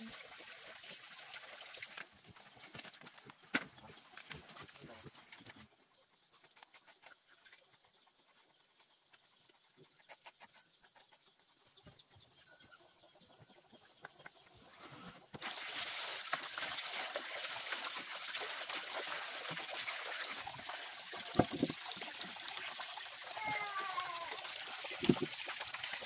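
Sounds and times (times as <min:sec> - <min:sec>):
water poured into plastic basin: 0:00.0 - 0:05.6, 0:15.4 - 0:26.0.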